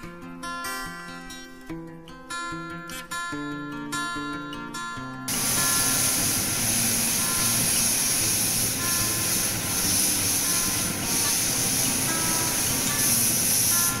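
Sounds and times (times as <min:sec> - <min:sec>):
cutting torch hissing: 0:05.3 - 0:14.0.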